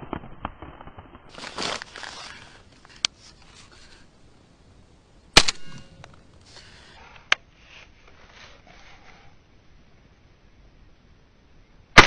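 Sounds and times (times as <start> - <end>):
sharp crack: 5.3 - 6.7
shotgun blast: 5.4 - 6.0.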